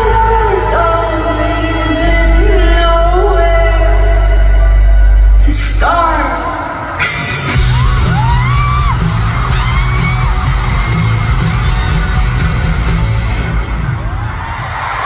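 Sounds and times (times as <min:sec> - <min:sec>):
live rock band: 0:00.0 - 0:15.0
crowd yelling and screaming: 0:04.4 - 0:15.0.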